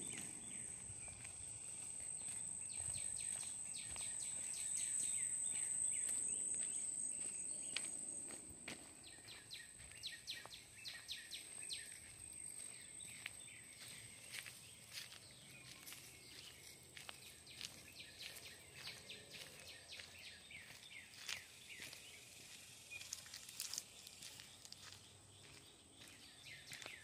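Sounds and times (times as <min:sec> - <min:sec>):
high-pitched insect trill: 0:00.0 - 0:08.4.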